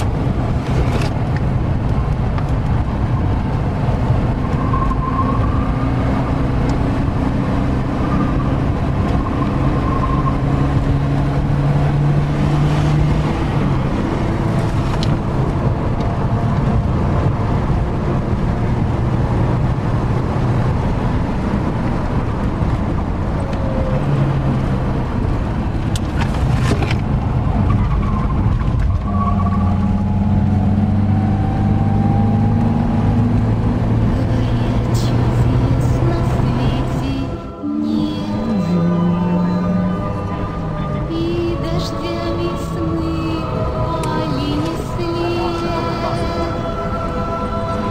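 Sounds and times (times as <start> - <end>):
car engine revving: 0.0 - 47.9
road noise inside car: 0.0 - 47.9
tire squeals: 2.5 - 15.2, 26.0 - 33.4.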